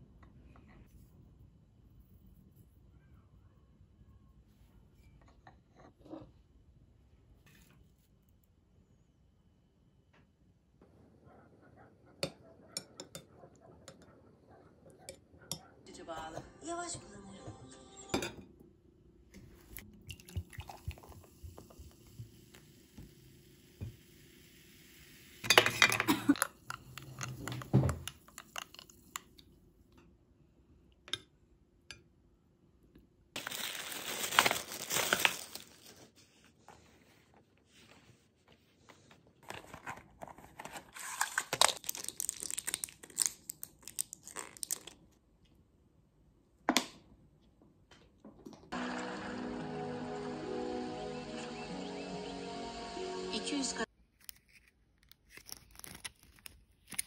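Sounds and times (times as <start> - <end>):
crinkling: 33.4 - 45.2, 54.0 - 57.0.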